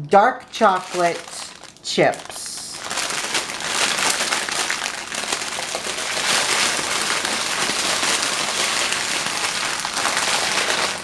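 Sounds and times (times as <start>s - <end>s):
plastic bag crinkling: 0.4s - 11.0s.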